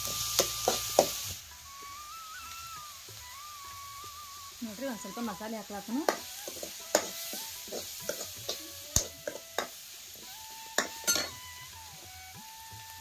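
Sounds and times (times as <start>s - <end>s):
light sizzle: 0.0s - 13.0s
ladle scraping metal pan: 6.1s - 9.7s, 10.8s - 11.4s.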